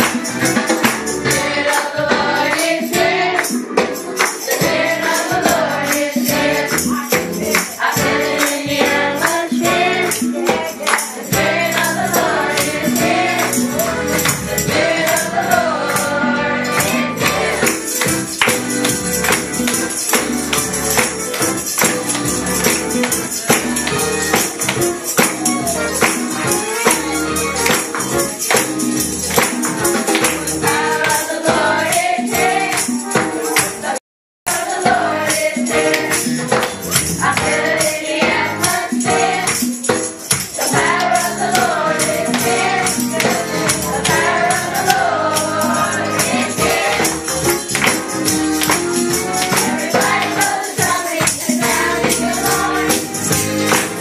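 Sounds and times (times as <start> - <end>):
tambourines shaken: 0.0 - 54.0
choir singing: 1.2 - 18.4, 30.0 - 33.0, 33.6 - 36.4, 37.2 - 39.7, 40.6 - 47.9, 49.2 - 54.0.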